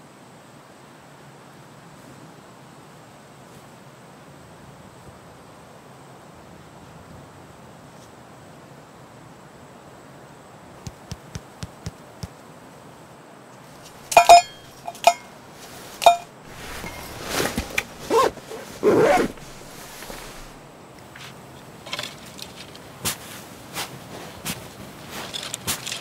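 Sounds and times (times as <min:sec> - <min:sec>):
backpack fabric rustling: 0:13.8 - 0:20.6
footsteps crunching in snow: 0:13.8 - 0:20.6.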